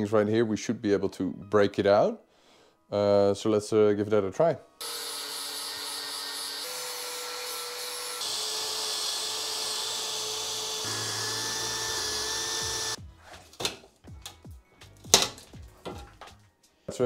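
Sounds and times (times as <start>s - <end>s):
angle grinder grinding metal: 4.8s - 13.0s
cordless drill running: 8.2s - 13.0s
metal knocks and clanks: 15.1s - 16.4s.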